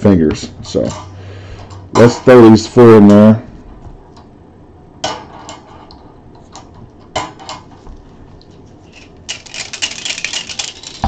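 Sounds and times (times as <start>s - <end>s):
balls rattling in shaken container: 8.8s - 11.0s
balls clacking into container: 9.0s - 11.0s.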